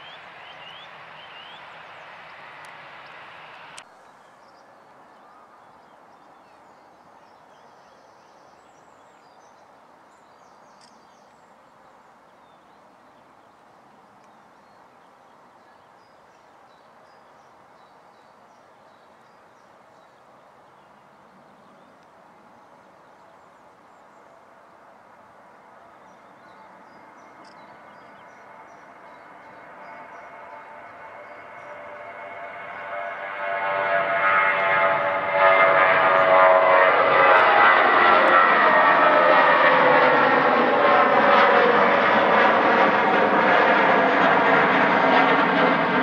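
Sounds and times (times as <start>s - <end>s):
bird chirps: 0.0s - 2.4s
distant jet engine rush: 0.0s - 4.4s, 21.1s - 46.0s.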